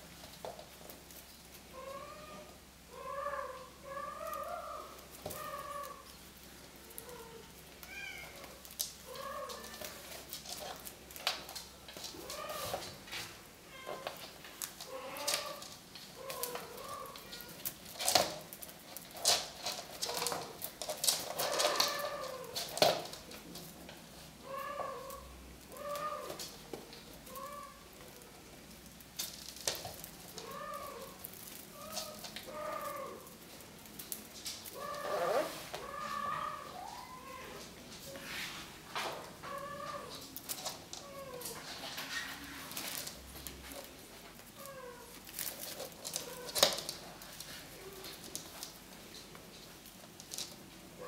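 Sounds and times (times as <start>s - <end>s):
kittens mewing: 1.7s - 6.1s, 14.8s - 18.2s, 20.0s - 22.8s, 24.4s - 26.6s, 27.2s - 28.5s, 30.2s - 33.4s, 34.6s - 37.8s, 39.4s - 41.8s.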